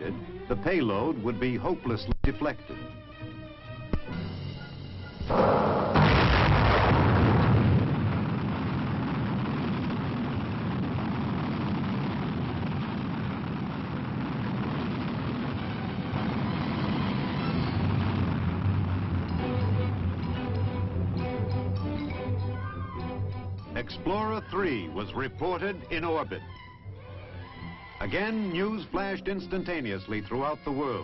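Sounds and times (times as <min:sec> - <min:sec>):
rocket engine roar: 0:04.3 - 0:26.6.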